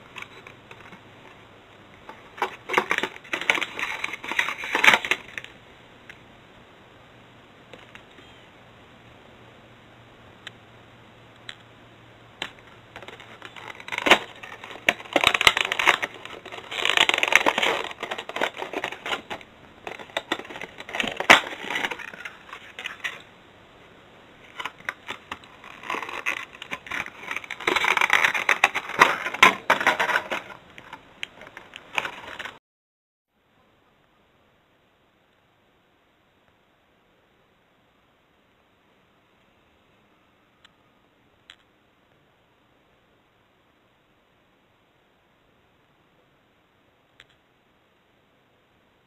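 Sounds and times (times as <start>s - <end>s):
plastic packaging crinkling: 2.0s - 5.5s, 12.9s - 23.3s, 24.4s - 32.6s.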